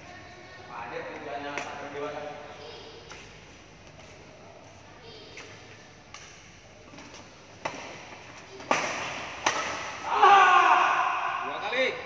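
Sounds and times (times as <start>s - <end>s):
rackets hitting shuttlecock: 5.4s - 10.1s.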